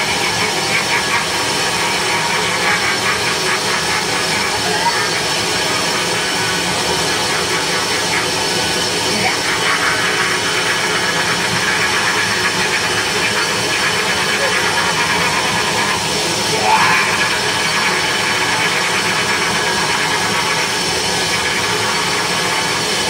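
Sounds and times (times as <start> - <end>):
harsh electronic noise and hiss: 0.0 - 23.0.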